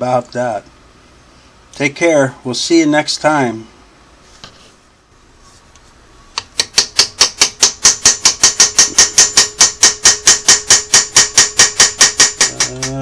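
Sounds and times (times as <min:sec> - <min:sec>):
hammer tapping on metal tool: 0:06.4 - 0:13.0.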